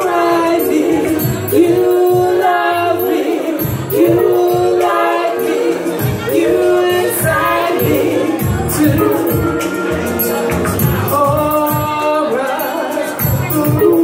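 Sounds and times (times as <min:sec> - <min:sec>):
woman singing into microphone: 0:00.0 - 0:09.8
karaoke backing track: 0:00.0 - 0:14.0.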